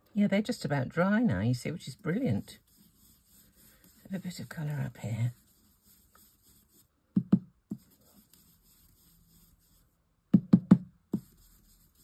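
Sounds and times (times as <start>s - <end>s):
brush tapping on ink pad: 7.1s - 8.4s, 10.3s - 11.4s.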